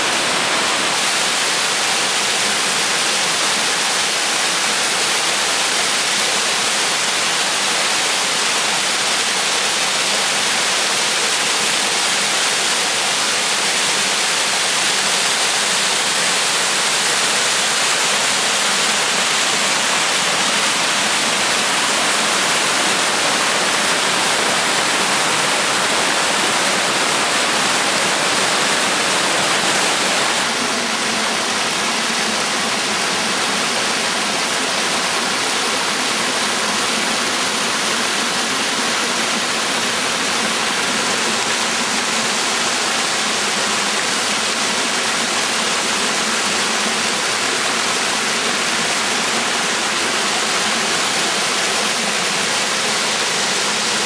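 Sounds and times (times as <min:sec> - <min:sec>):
waterfall rushing over rocks: 0:00.0 - 0:54.0.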